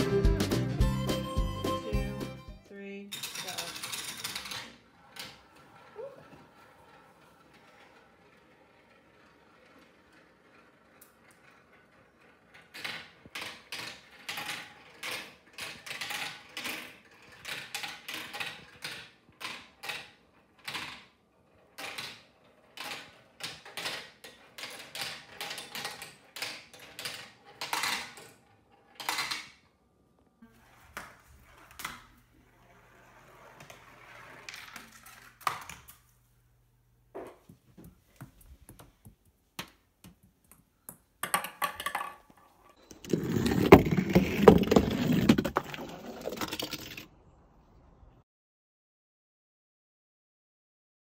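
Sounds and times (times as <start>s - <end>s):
marbles clattering down plastic run: 3.1s - 21.1s, 41.2s - 42.3s, 42.9s - 47.1s
marble rolling: 3.2s - 29.8s, 30.5s - 36.2s, 37.1s - 47.4s.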